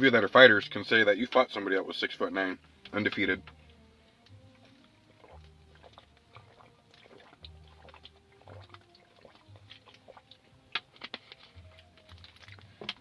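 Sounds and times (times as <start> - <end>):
faint background music: 0.0 - 13.0
plastic bottle crackling: 4.2 - 13.0
faint swallowing: 4.6 - 10.4.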